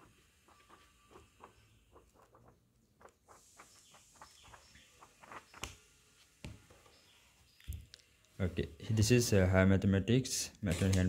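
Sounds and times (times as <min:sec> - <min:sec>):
paper pages flipping: 0:00.5 - 0:06.3.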